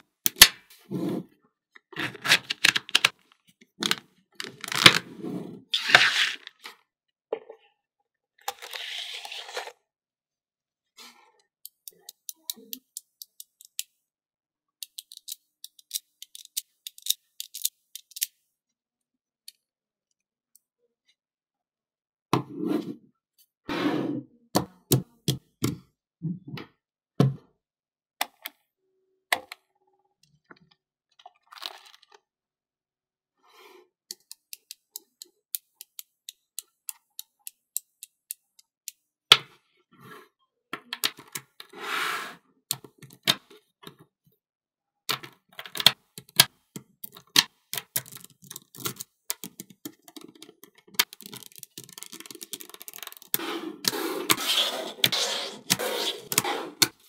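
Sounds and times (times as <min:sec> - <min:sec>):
magnetic balls clicking together: 0:47.8 - 0:53.4.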